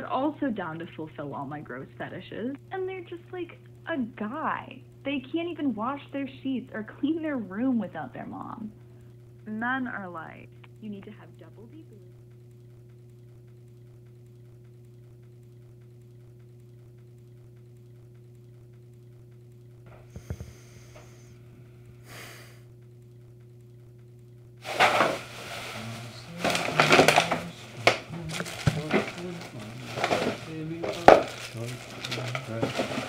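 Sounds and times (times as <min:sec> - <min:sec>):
steady low hum: 0:00.0 - 0:33.0
plastic garbage bag rustling: 0:24.6 - 0:33.0.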